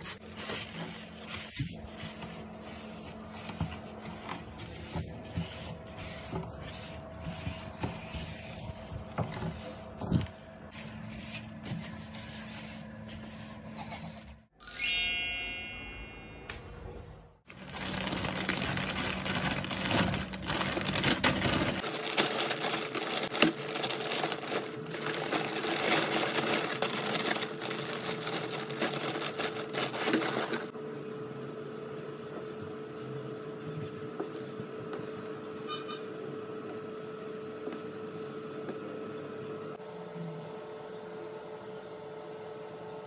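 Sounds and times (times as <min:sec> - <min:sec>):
paper bedding rustling: 0:00.0 - 0:13.4, 0:17.5 - 0:30.8
plastic bag crinkling: 0:17.5 - 0:30.7.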